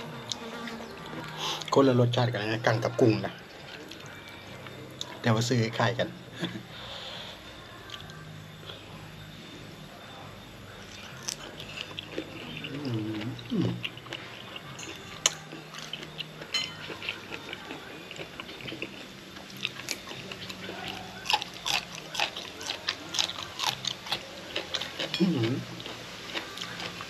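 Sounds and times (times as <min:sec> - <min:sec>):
wet chewing: 0:10.9 - 0:27.0.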